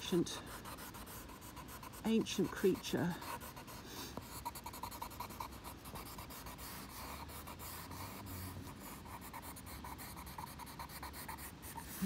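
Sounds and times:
charcoal pencil scratching paper: 0.0 - 12.0.

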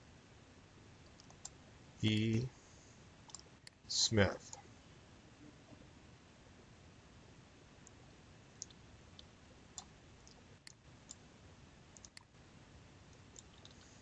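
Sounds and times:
faint computer mouse clicks: 3.3 - 3.8, 12.0 - 12.3, 13.1 - 13.8.

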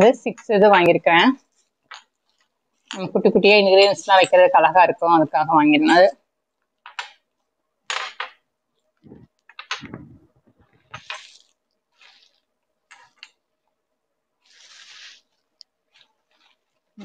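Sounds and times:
plastic wrapping rustling: 9.0 - 13.4, 14.4 - 17.0.

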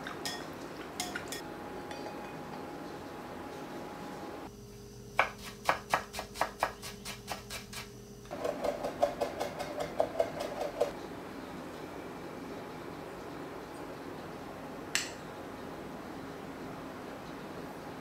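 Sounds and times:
knife chopping on wooden board: 8.4 - 10.9.

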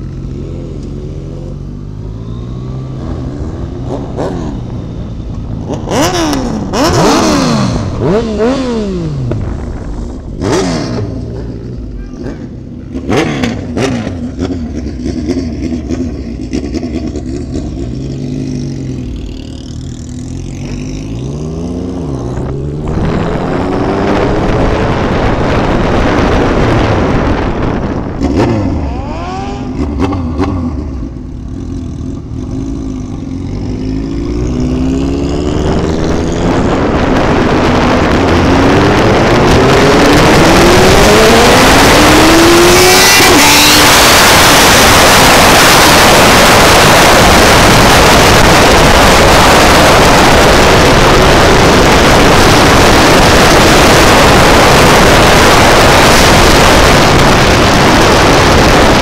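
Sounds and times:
motorcycle accelerating: 0.0 - 59.0
wind noise on microphone: 3.3 - 11.4, 21.0 - 31.2, 33.5 - 59.0.

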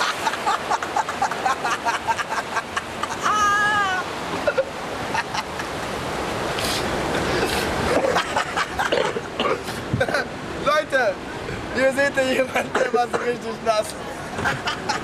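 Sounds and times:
people laughing: 0.0 - 4.1, 5.0 - 6.0, 8.0 - 9.1, 14.1 - 15.0
rapids water rushing: 0.0 - 15.0
person's high-pitched cry: 3.1 - 4.1.

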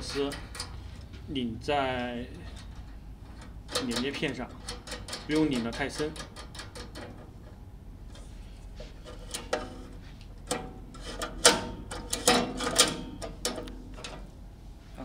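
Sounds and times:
metallic clicks of bolt and nut: 2.5 - 7.6, 10.5 - 14.2.

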